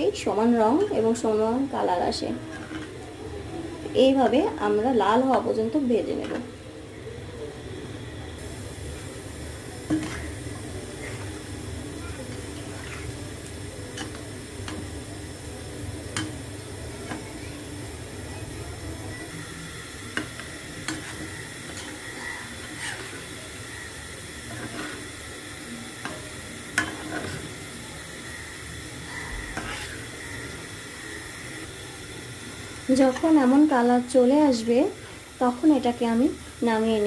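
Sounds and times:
dough balls sizzling in oil: 0.0 - 37.0
metal spatula scraping pan: 2.3 - 3.0, 9.9 - 15.0, 20.1 - 25.2, 26.0 - 27.6, 29.2 - 30.6.

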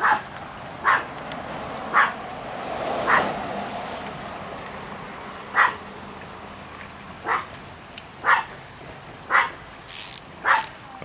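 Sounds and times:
dog barking: 0.0 - 1.1, 1.9 - 2.2, 3.0 - 3.4, 5.5 - 5.8, 7.2 - 7.5, 8.2 - 8.5, 9.3 - 9.6, 10.4 - 10.7.

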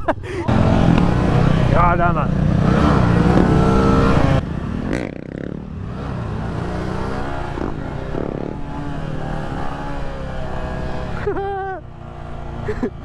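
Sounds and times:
dirt bike engine running: 0.5 - 10.7.

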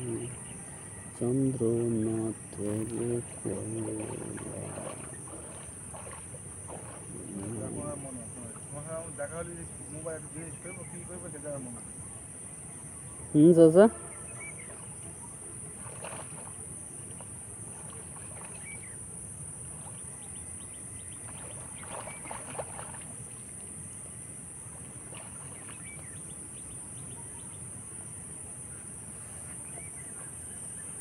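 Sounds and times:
bird chirps and calls: 14.0 - 14.8.

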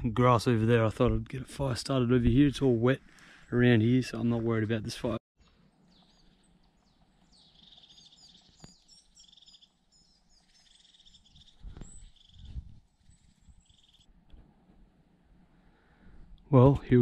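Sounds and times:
songbirds trilling and chirping: 3.0 - 14.1.

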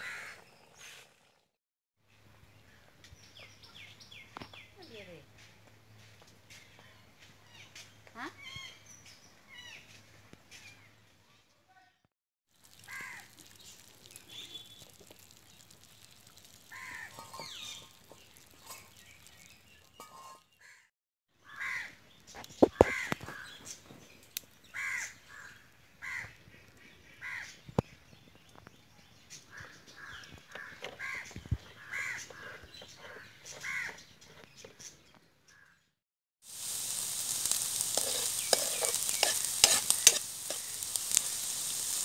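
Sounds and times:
crows cawing: 0.0 - 0.4, 12.8 - 13.4, 16.7 - 17.5, 21.4 - 22.0, 24.7 - 26.4, 29.6 - 32.5, 33.6 - 34.0.

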